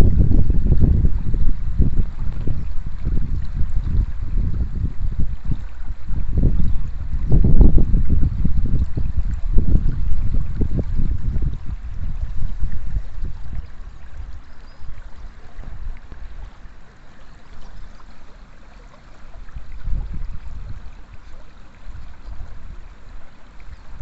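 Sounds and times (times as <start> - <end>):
wind buffeting microphone: 0.0 - 16.8, 19.3 - 24.0
river water rushing: 11.0 - 24.0.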